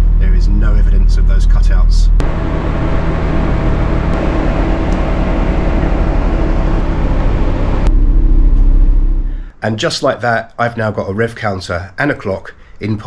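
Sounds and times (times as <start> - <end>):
car engine idling: 2.2 - 9.5.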